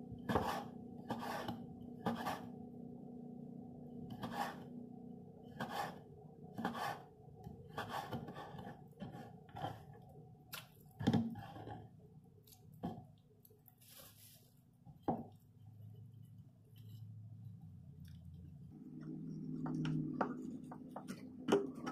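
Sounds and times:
knife cutting on wooden board: 0:00.3 - 0:02.5, 0:04.1 - 0:04.6, 0:05.6 - 0:06.0, 0:06.6 - 0:07.1, 0:07.7 - 0:09.9
short rustle: 0:13.8 - 0:14.6.

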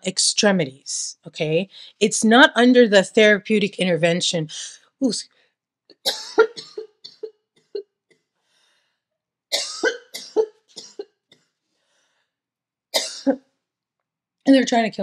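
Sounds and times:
woman coughing: 0:06.1 - 0:07.8, 0:09.5 - 0:11.2, 0:13.0 - 0:13.4.

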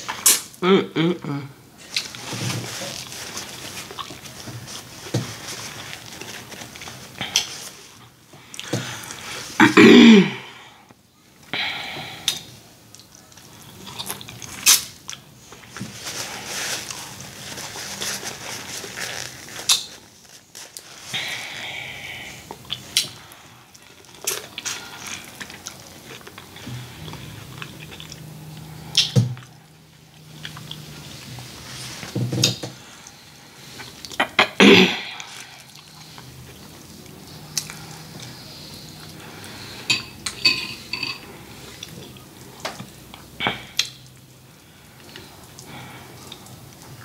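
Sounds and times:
chewing and smacking: 0:12.3 - 0:15.6, 0:22.5 - 0:31.6, 0:35.3 - 0:39.6
dishes clinking: 0:39.9 - 0:41.4.

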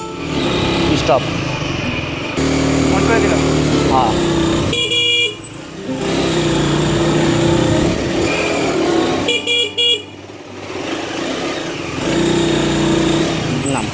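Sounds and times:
motorcycle engine running: 0:00.0 - 0:13.9
electric horn short beeps: 0:04.6 - 0:06.0, 0:09.1 - 0:10.1.

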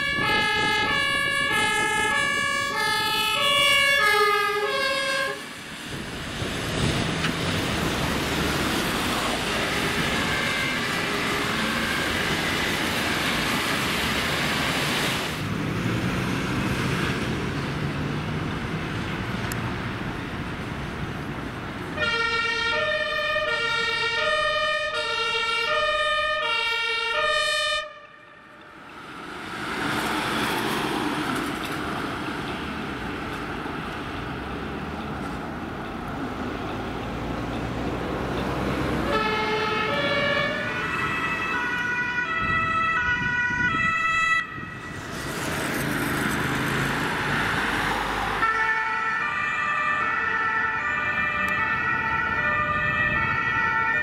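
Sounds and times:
two-tone emergency siren: 0:00.0 - 0:05.5, 0:09.1 - 0:12.9, 0:22.0 - 0:28.8, 0:39.0 - 0:45.2, 0:47.2 - 0:54.0
traffic noise: 0:00.0 - 0:54.0.

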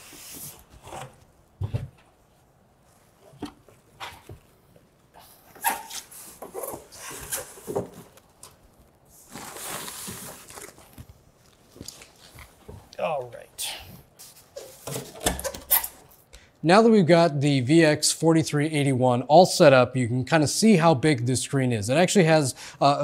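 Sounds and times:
styrofoam squeaking and creaking: 0:05.6 - 0:07.7
plastic cover rustling: 0:05.8 - 0:12.7.

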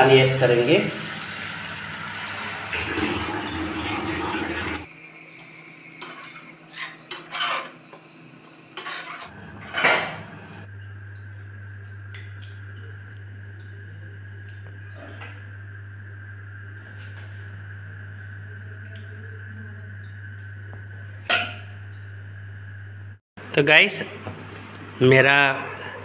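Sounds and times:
water poured into hot pan: 0:00.8 - 0:04.9
spatula scraping and knocking pan: 0:08.8 - 0:10.6
low steady hum: 0:09.3 - 0:25.0.

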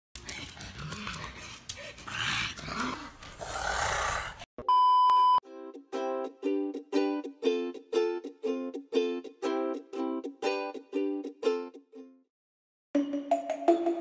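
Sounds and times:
plucked ukulele music: 0:05.5 - 0:12.2.

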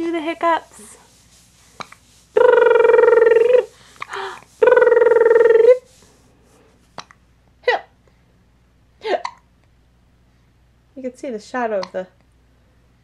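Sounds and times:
baby hiccups: 0:09.2 - 0:09.5.

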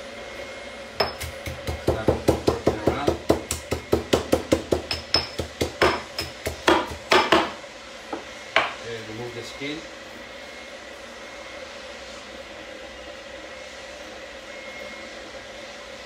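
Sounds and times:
pestle pounding in mortar: 0:01.0 - 0:07.6.

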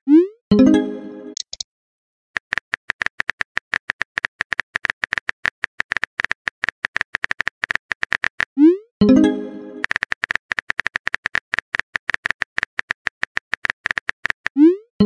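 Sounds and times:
rapid keyboard typing clicks: 0:02.4 - 0:08.5, 0:09.8 - 0:14.6.

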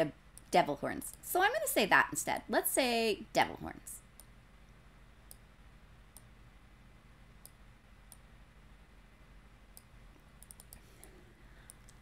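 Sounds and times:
low room hum: 0:00.0 - 0:12.0
computer mouse clicks: 0:05.2 - 0:05.5, 0:06.1 - 0:06.3, 0:07.4 - 0:08.3, 0:09.7 - 0:12.0.

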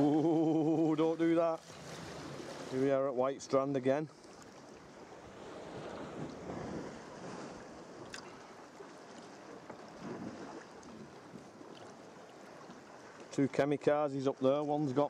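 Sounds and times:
water splashing around kayak: 0:00.0 - 0:15.0
wind buffeting microphone: 0:05.3 - 0:08.0.

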